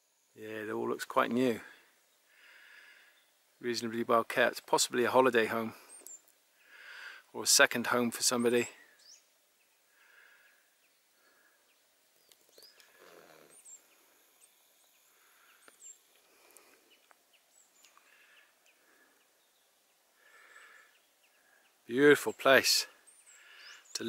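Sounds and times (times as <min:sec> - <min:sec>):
faint bird chirps: 0:02.0 - 0:03.8, 0:08.3 - 0:24.0.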